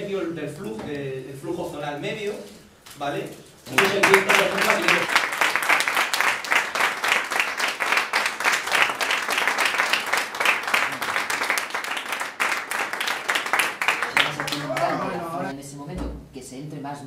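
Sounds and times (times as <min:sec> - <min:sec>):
audience applauding: 0:03.7 - 0:15.5.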